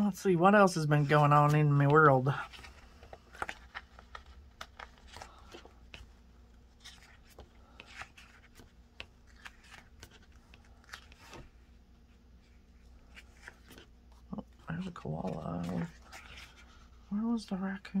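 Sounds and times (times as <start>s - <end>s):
pages flipping and rustling: 1.0s - 11.8s, 12.4s - 17.0s.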